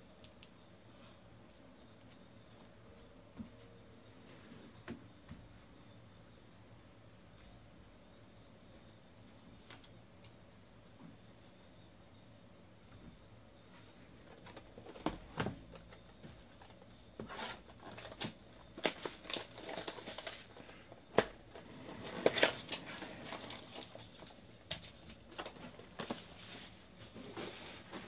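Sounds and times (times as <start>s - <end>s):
shrink wrap crinkling and tearing: 17.3s - 21.3s, 22.0s - 26.5s.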